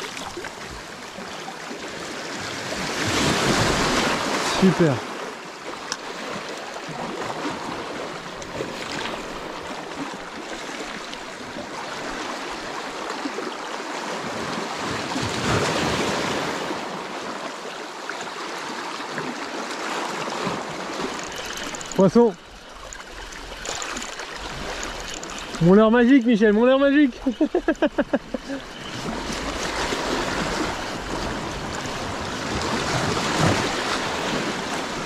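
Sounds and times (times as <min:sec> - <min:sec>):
waves washing over rocks: 0:00.0 - 0:35.0
faint clicks: 0:21.1 - 0:22.2, 0:22.8 - 0:26.4.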